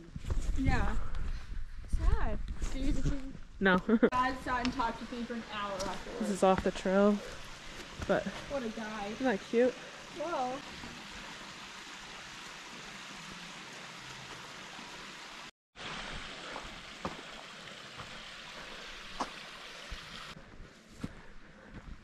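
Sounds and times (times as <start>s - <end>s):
hiss of running water: 4.3s - 20.4s.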